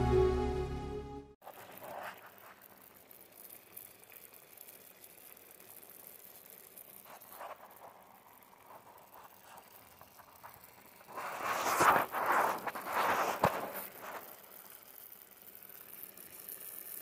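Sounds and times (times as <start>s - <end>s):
faint steady hiss: 1.4s - 17.0s
soft crackles: 1.4s - 17.0s.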